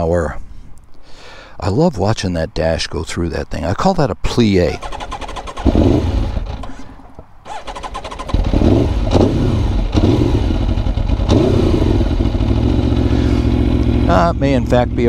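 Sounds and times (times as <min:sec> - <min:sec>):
engine starter cranking: 0:04.7 - 0:10.1
motorcycle engine idling: 0:04.8 - 0:15.0.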